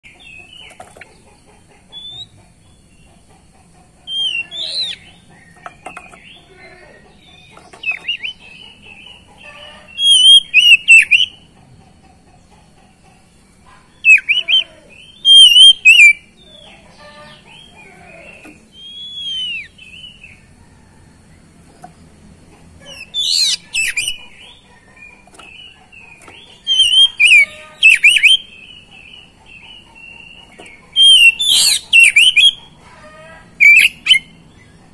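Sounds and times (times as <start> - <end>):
bird singing whistled phrases: 4.1 - 5.0, 10.0 - 11.3, 14.0 - 16.2, 18.7 - 20.1, 26.6 - 28.5, 31.0 - 32.6, 33.6 - 34.3.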